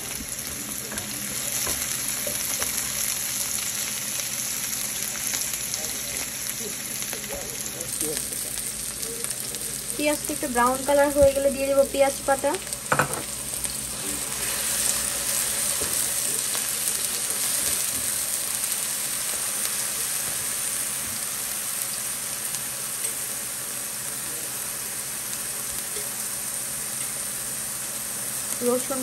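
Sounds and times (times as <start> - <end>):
onions sizzling in oil: 0.0 - 29.0.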